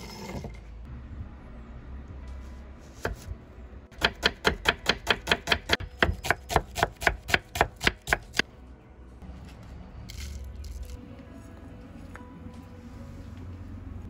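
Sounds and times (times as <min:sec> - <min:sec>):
knife chopping onion on board: 0:03.9 - 0:08.4.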